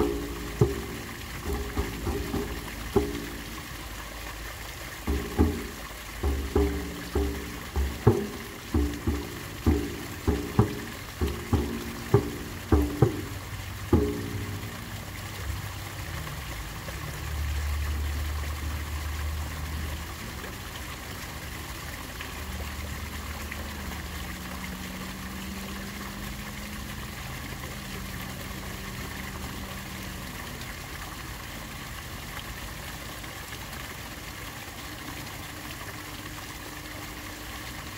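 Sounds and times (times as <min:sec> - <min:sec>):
water pouring into a pool: 0:00.0 - 0:37.9
low hums: 0:05.0 - 0:15.5.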